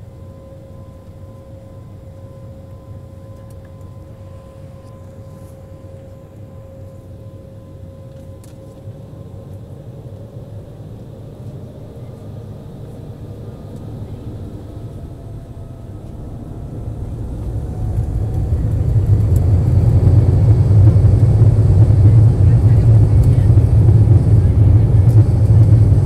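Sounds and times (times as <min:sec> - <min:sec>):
jet engine low rumble: 0:00.0 - 0:26.0
jet engine whine: 0:00.0 - 0:26.0.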